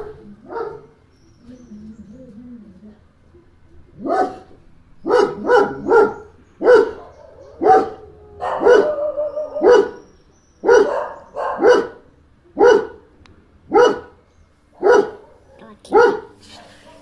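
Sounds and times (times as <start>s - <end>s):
dog barking: 0.0s - 1.0s, 4.0s - 13.1s, 13.7s - 14.2s, 14.8s - 17.0s.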